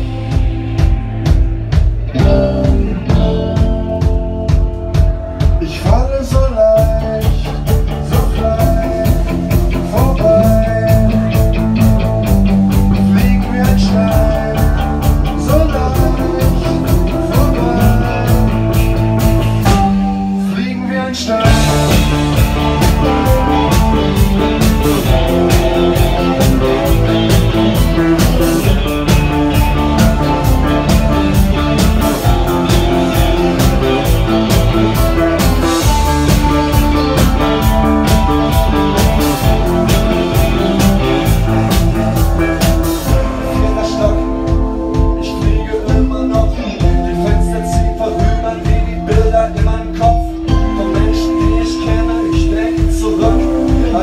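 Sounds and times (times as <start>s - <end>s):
rock band playing: 0.0s - 54.0s.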